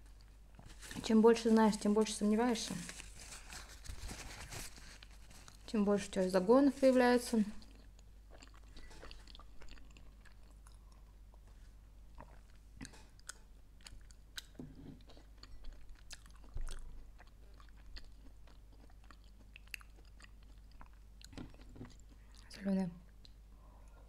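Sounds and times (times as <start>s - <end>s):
person chewing food: 7.6s - 22.5s, 23.1s - 24.0s.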